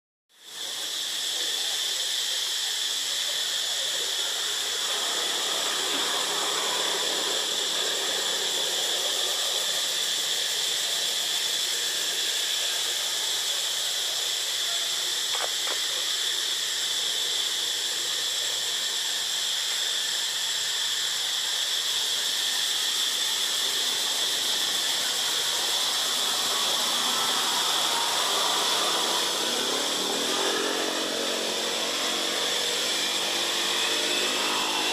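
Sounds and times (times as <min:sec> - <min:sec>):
insects droning: 0:00.3 - 0:34.9.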